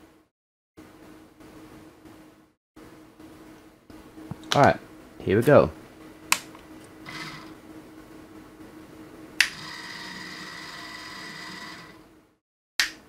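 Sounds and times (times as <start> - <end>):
light fixture motor whine: 5.9 - 12.4
sharp click: 12.8 - 13.0.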